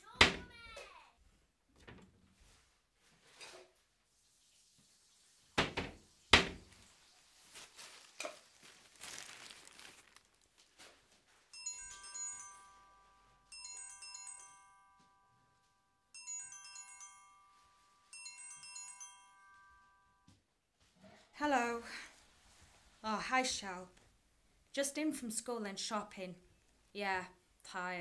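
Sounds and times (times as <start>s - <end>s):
rustling: 2.3s - 11.5s
mobile phone ringtone: 11.6s - 20.2s.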